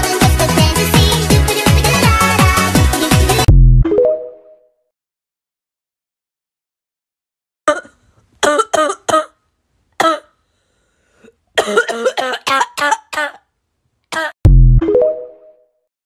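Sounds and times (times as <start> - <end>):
person coughing: 7.7 - 9.4, 10.0 - 10.4, 11.2 - 13.5, 14.1 - 14.4.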